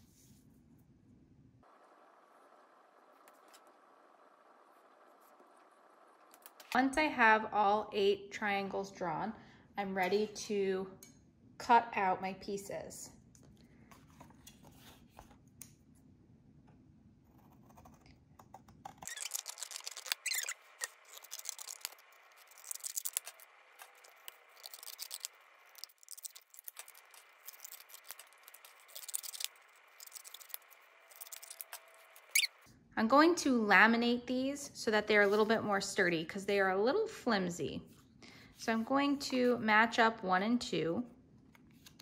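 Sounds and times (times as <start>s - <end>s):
scissors cutting cardstock: 17.3s - 32.5s.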